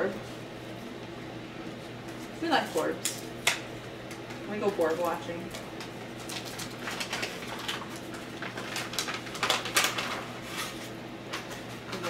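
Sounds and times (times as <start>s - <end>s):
paper and cards rustling: 4.7s - 11.7s.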